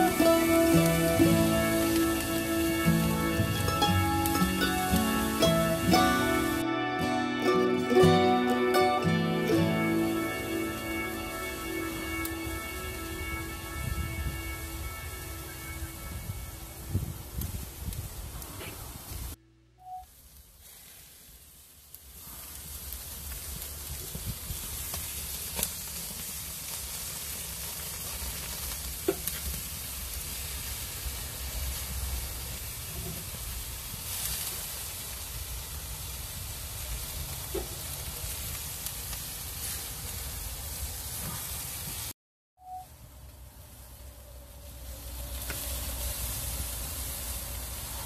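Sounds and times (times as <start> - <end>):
meat sizzling on a grill: 0.0 - 6.6, 20.2 - 42.1, 44.7 - 48.0.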